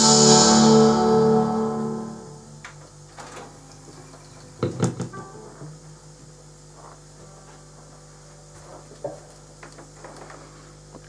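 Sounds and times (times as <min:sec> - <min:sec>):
guitar amplifier hum: 0:00.0 - 0:07.9.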